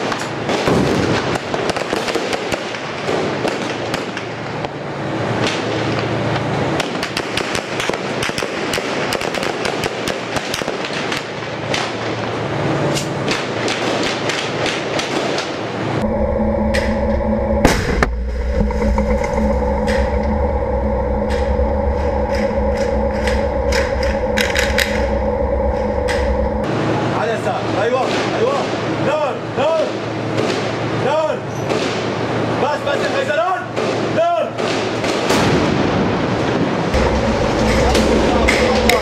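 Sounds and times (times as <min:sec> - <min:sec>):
dense background roar: 0:00.0 - 0:39.0
tank engine droning: 0:04.1 - 0:27.9, 0:35.4 - 0:39.0
gunfire crackling: 0:06.8 - 0:12.4.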